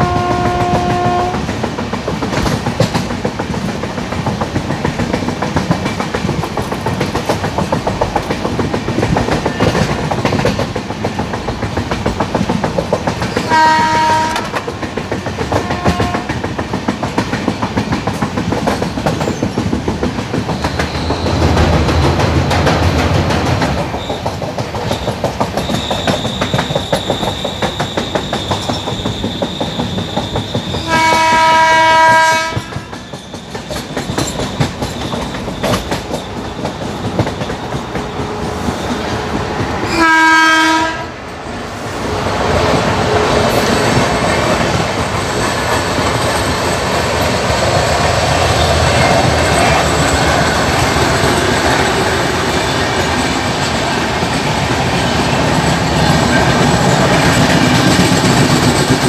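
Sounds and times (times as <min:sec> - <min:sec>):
locomotive horn blasts: 0:00.0 - 0:01.5, 0:13.5 - 0:14.6, 0:15.6 - 0:16.4, 0:30.8 - 0:32.9, 0:39.9 - 0:41.1
train wheels clacking over rail joints: 0:00.0 - 0:41.0, 0:42.1 - 0:59.0
passing train rushing: 0:00.0 - 0:59.0.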